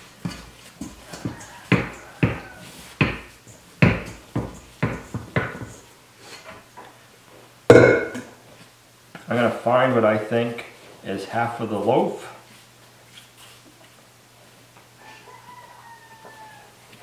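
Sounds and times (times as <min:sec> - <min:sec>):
loud bowl clunk: 0:07.7 - 0:08.3.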